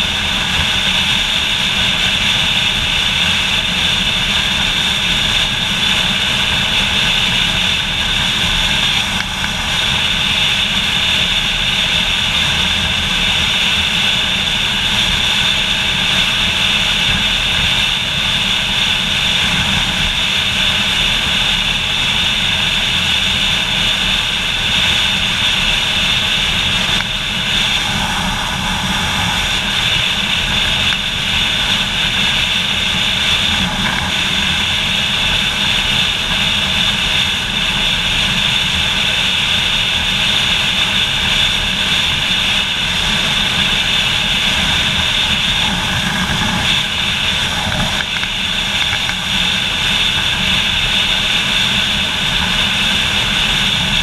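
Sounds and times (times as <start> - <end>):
motorcycle engine drone: 0.0 - 54.0
rushing wind: 0.0 - 54.0.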